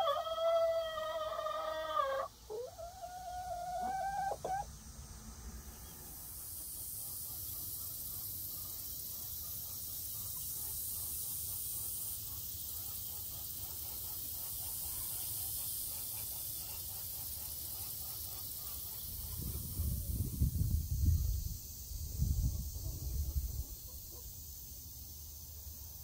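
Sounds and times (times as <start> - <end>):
hen calling: 0.0 - 4.7
insect chorus hissing: 0.0 - 26.0.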